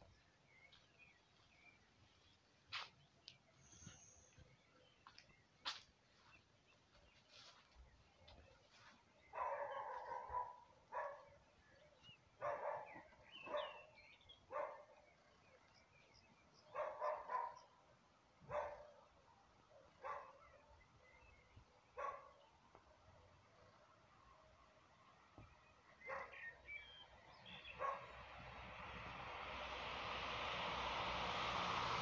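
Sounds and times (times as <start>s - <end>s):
dog barking: 9.3s - 11.3s, 12.4s - 13.9s, 14.5s - 15.0s, 16.7s - 17.7s, 18.5s - 19.0s, 19.8s - 20.5s, 22.0s - 22.4s, 26.0s - 26.5s, 27.8s - 28.2s.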